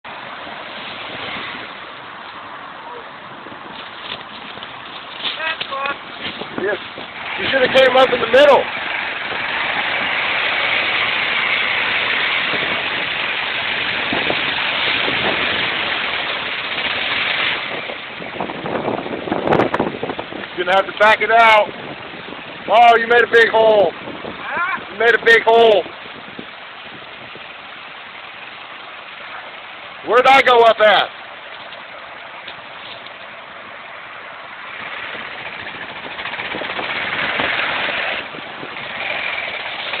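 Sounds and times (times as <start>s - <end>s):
wheel churning water and mud: 0.0s - 40.0s
motorcycle engine under throttle: 6.4s - 20.1s, 34.7s - 40.0s
dirt bike engine running: 34.7s - 40.0s.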